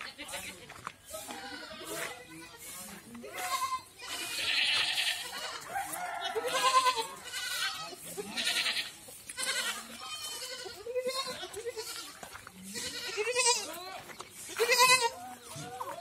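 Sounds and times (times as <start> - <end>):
goats bleating: 1.1 - 16.0.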